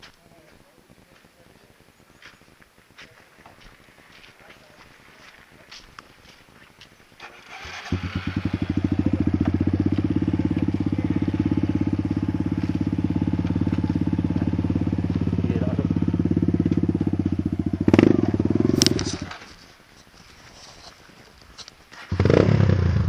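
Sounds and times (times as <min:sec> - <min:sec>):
dirt bike engine idling: 0:07.2 - 0:19.4.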